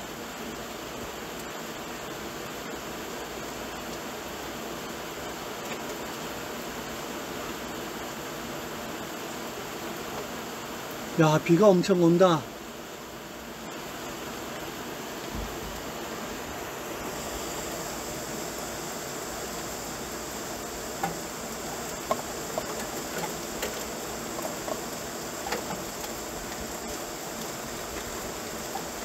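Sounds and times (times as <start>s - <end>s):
heavy rain pouring: 15.1s - 29.0s.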